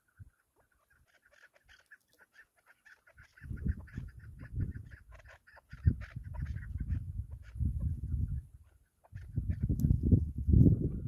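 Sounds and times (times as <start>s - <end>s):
low rumble in gusts: 9.2s - 11.0s.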